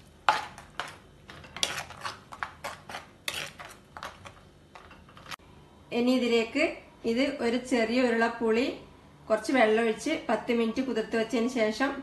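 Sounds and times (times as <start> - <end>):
spoon scraping clay pot: 0.0 - 5.4.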